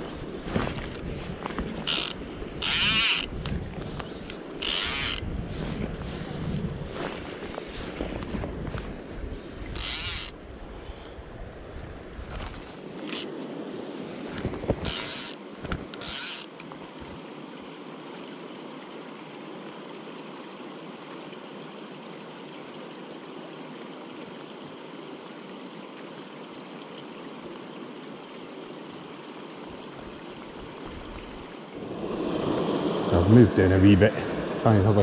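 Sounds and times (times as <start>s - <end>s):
river running over rocks: 0.0s - 5.2s, 24.5s - 35.0s
short noise bursts: 9.8s - 10.3s.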